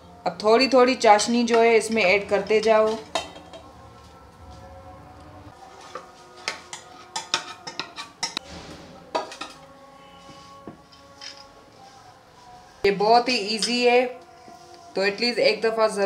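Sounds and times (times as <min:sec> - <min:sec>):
steel pot clinking on bowl: 0:02.8 - 0:03.7.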